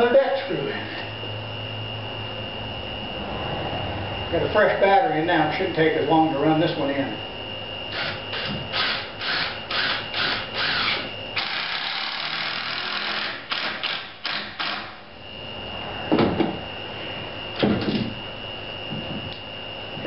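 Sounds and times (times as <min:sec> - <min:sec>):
cordless drill driving screw: 0:07.9 - 0:14.8.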